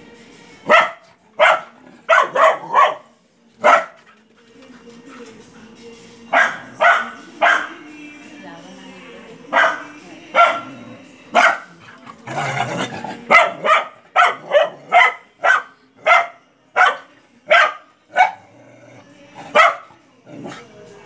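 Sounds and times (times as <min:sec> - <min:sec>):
dog barking angrily: 0:00.7 - 0:04.0, 0:06.3 - 0:07.8, 0:09.5 - 0:18.6, 0:19.4 - 0:20.6
dog growling: 0:09.6 - 0:15.2, 0:18.2 - 0:19.6, 0:20.2 - 0:20.9.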